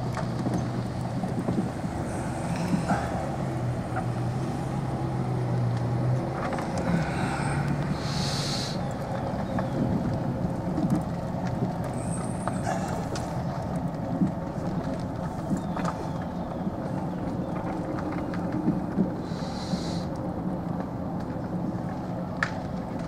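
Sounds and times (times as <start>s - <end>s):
golf cart driving: 0.0s - 23.0s.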